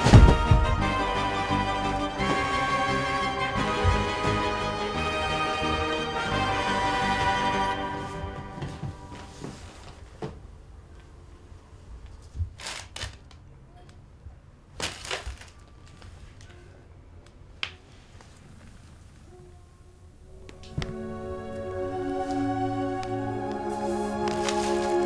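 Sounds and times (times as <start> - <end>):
crunching and crinkling: 12.1 - 13.5, 14.7 - 16.7, 23.6 - 25.0.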